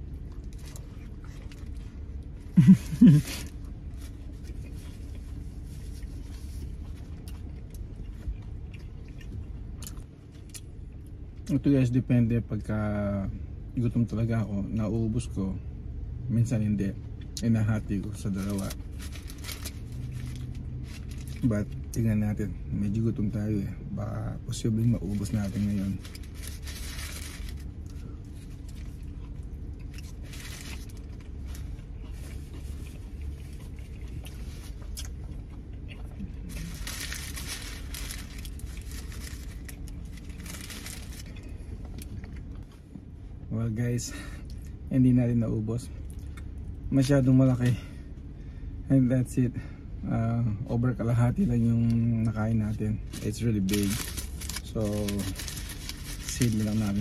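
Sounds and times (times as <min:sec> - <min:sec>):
steady low hum: 0:00.0 - 0:57.0
person chewing food: 0:03.6 - 0:11.2, 0:27.6 - 0:36.8
paper wrapper crinkling: 0:18.2 - 0:21.7, 0:24.8 - 0:29.1, 0:29.8 - 0:33.6, 0:36.5 - 0:41.5, 0:53.1 - 0:57.0.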